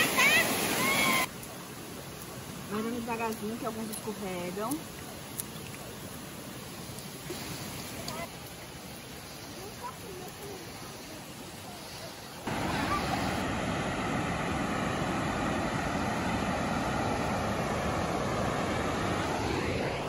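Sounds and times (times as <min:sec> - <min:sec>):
waterfall roaring: 0:00.0 - 0:05.2, 0:05.9 - 0:20.0
outdoor ambience: 0:00.0 - 0:20.0.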